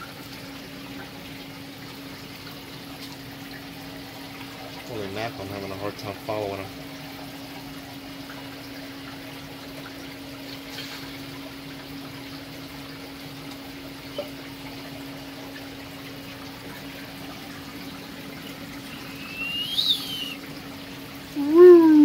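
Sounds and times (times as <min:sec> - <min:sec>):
water splashing and trickling: 0:00.0 - 0:22.0
steady hum: 0:15.1 - 0:22.0.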